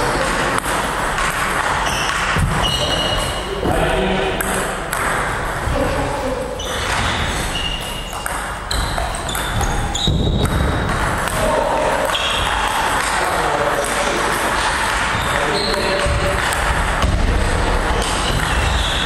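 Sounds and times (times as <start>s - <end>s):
ball bouncing on wooden floor: 0.1s - 5.8s, 6.6s - 19.0s
ping pong ball clicking off paddles: 4.4s - 5.4s, 7.8s - 17.0s
short high squeaks: 6.6s - 10.3s.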